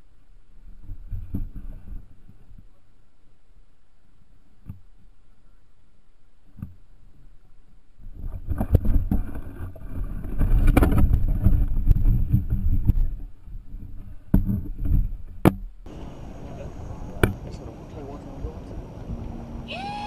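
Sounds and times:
water splashing and sloshing: 0:06.4 - 0:18.0.

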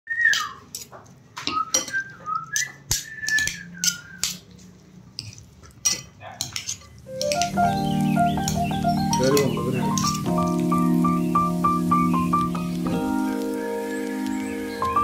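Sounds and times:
thin sliding whistle tones: 0:01.5 - 0:04.4
metal spoon scraping ceramic bowl: 0:05.2 - 0:07.4.

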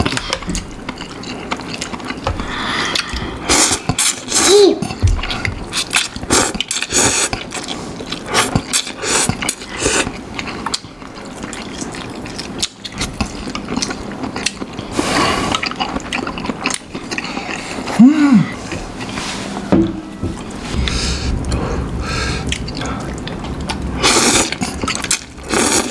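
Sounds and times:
chewing: 0:00.0 - 0:19.3, 0:22.4 - 0:25.9
noodles slurped: 0:22.4 - 0:25.9.

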